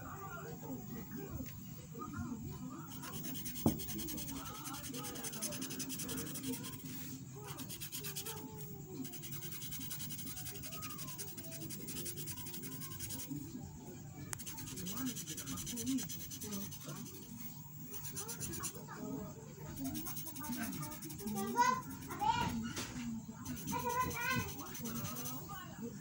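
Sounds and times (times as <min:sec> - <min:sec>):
marker scribbling on paper: 0:02.9 - 0:13.4, 0:14.4 - 0:18.9, 0:19.7 - 0:22.5, 0:23.4 - 0:25.5.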